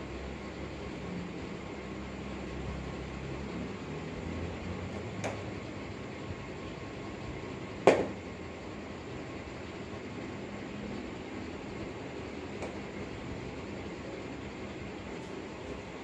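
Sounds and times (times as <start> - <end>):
room hiss: 0.0 - 16.0.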